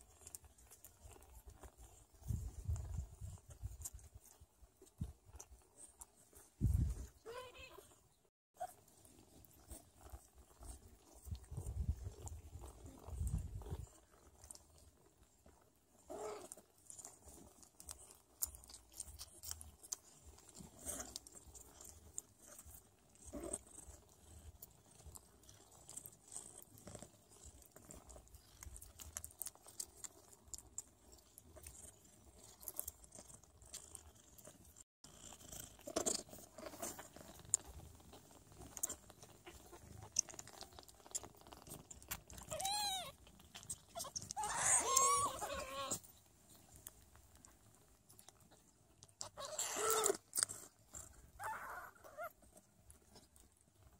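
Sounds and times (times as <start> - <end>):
soft kitten squeaks: 5.3 - 8.0, 36.2 - 46.2, 48.4 - 53.3
kittens suckling wet smacks: 35.4 - 51.4.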